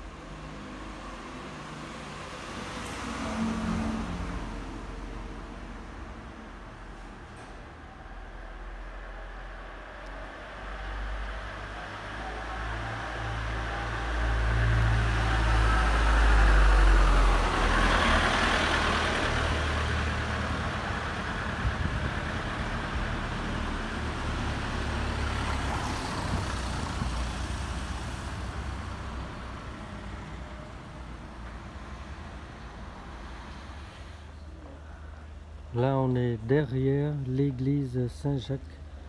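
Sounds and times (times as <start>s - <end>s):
vehicle passing: 0.0s - 35.5s.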